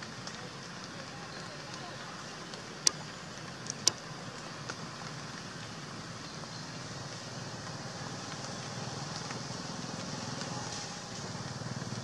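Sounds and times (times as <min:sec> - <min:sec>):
hiss: 0:06.7 - 0:12.0.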